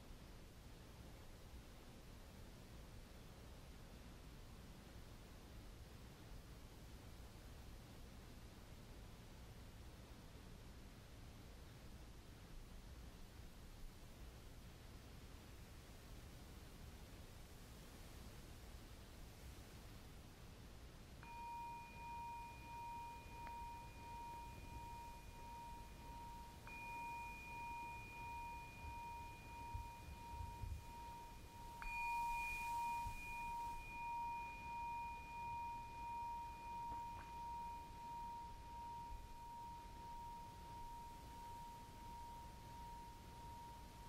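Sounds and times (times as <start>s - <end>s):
singing bowl ringing: 21.2s - 44.0s.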